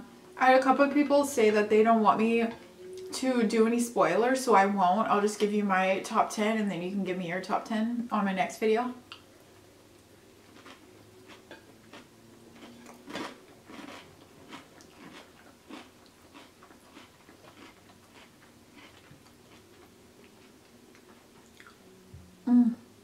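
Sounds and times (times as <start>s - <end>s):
person chewing food: 10.0s - 21.8s.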